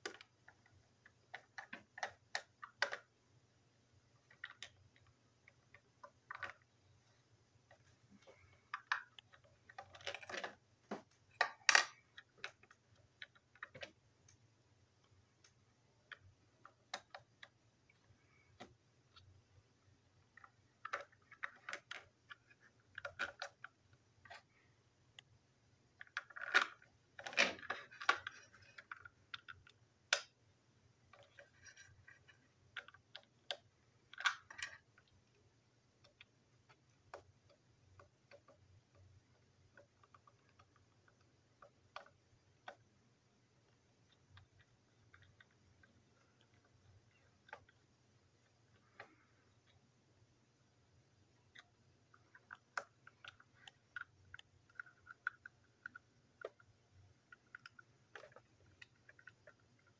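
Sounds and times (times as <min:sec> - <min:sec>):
plastic toy parts clicking: 0:00.0 - 0:03.1, 0:04.2 - 0:06.7, 0:08.4 - 0:14.4, 0:15.0 - 0:17.6, 0:20.3 - 0:24.5, 0:26.0 - 0:30.4, 0:31.1 - 0:35.2, 0:36.0 - 0:42.9, 0:51.4 - 0:59.9.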